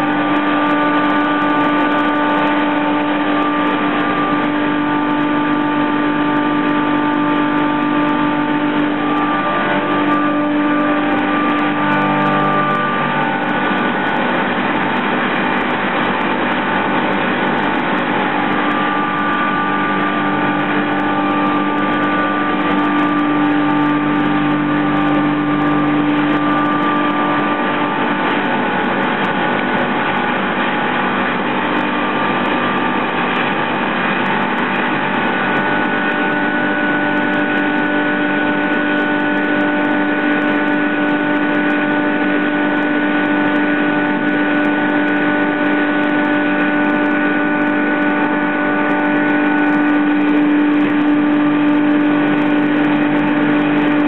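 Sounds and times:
steady hum: 0:00.0 - 0:54.0.

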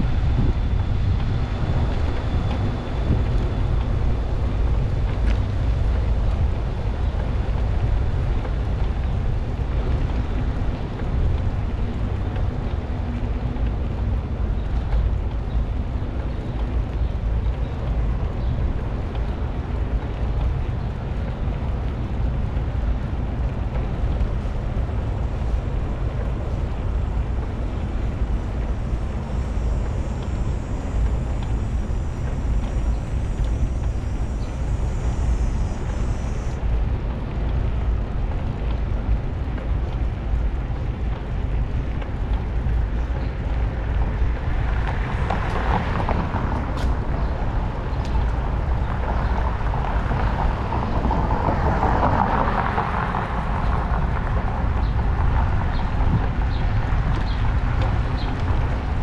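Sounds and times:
road and street noise: 0:00.0 - 0:59.0
wind buffeting microphone: 0:00.0 - 0:59.0.

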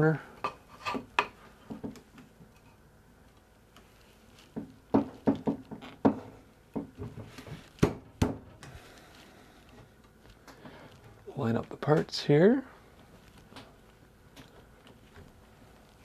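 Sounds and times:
wooden chair parts knocking: 0:04.5 - 0:08.5.

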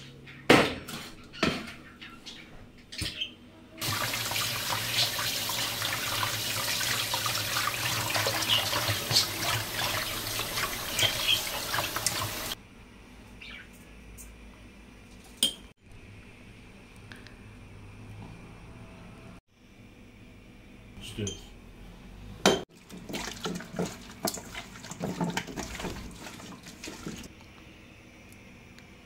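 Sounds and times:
tap water running and splashing: 0:03.8 - 0:12.6, 0:22.7 - 0:27.3.

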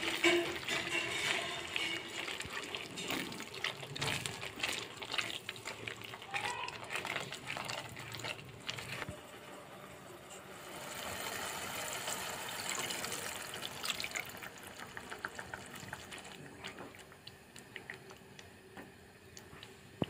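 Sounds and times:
oil crackling: 0:00.0 - 0:09.2
oil hissing and sizzling: 0:00.0 - 0:20.0.

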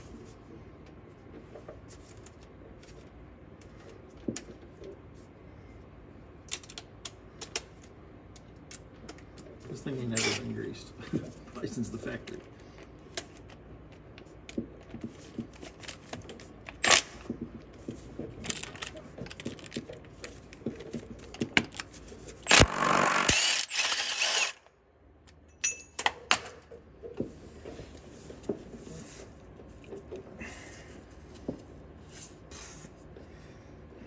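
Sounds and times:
metal tools clinking: 0:25.4 - 0:26.3.

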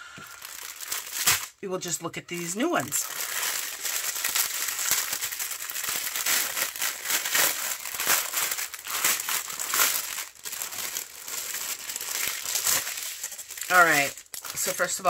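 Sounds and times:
plastic packets crinkling: 0:00.0 - 0:15.0.

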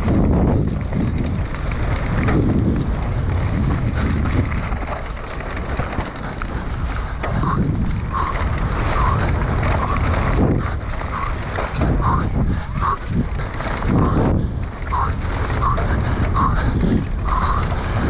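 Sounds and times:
bike rumbling on rough trail: 0:00.0 - 0:18.0
wind buffeting microphone: 0:00.0 - 0:18.0.

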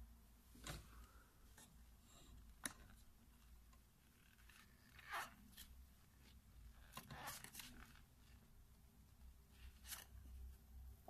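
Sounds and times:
paper pages rustling: 0:02.6 - 0:08.4.

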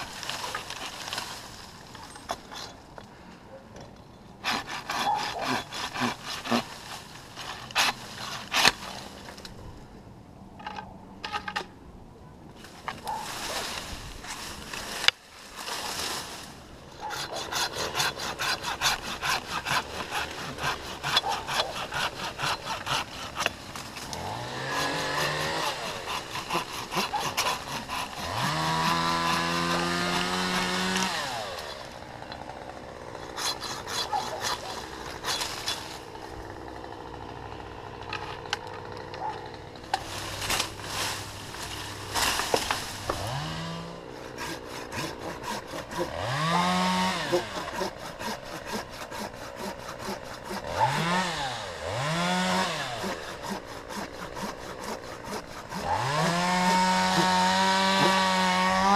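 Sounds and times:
handsaw cutting wood: 0:04.4 - 0:09.1, 0:17.0 - 0:58.9
chainsaw revving: 0:17.2 - 0:58.9.

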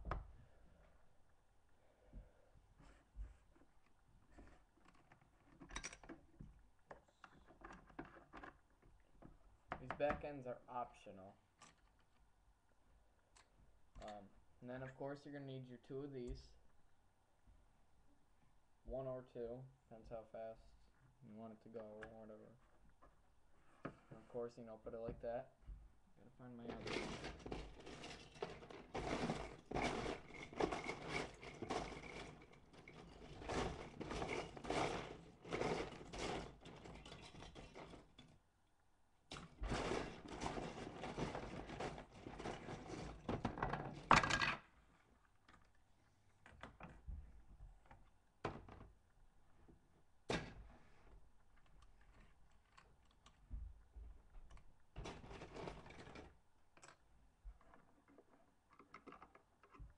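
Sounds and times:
plastic bricks rattling: 0:26.6 - 0:38.4, 0:39.3 - 0:44.7, 0:54.5 - 0:59.9.

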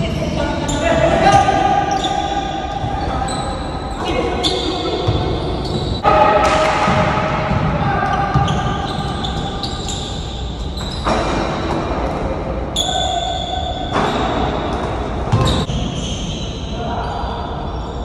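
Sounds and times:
basketball bouncing on court: 0:04.4 - 0:12.3, 0:13.9 - 0:15.8.

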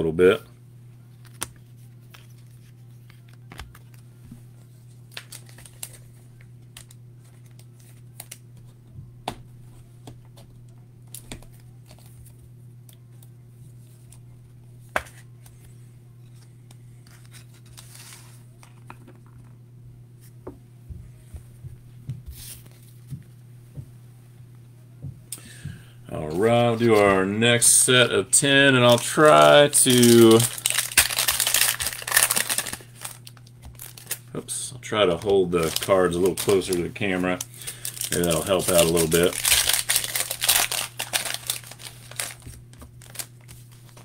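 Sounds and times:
steady low hum: 0:00.0 - 0:44.0
scratchy plastic rustles: 0:16.3 - 0:19.5, 0:28.8 - 0:44.0.

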